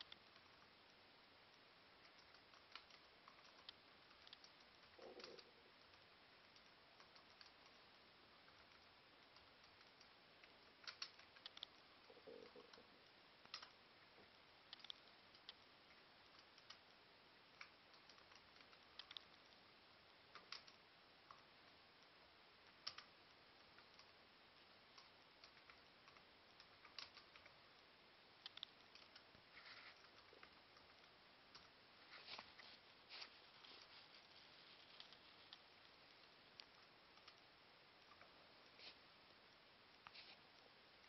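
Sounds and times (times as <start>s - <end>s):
faint steady hiss: 0.0s - 41.0s
laptop keys clicking: 2.0s - 7.8s, 10.8s - 11.9s, 13.4s - 13.8s, 14.7s - 15.6s, 17.6s - 19.6s, 20.3s - 21.4s, 22.8s - 23.1s, 25.0s - 27.6s, 28.4s - 29.3s.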